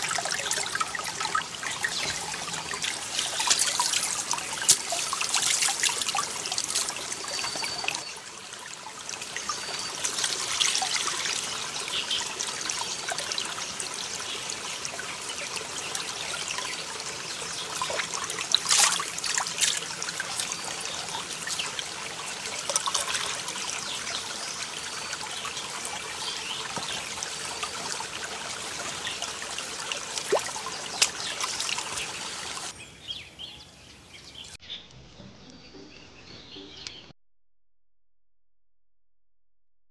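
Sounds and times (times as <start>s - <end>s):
splashing water: 0.0s - 13.5s, 17.4s - 32.7s
pot filling with water: 0.0s - 32.7s
stream trickling over rocks: 0.0s - 32.8s.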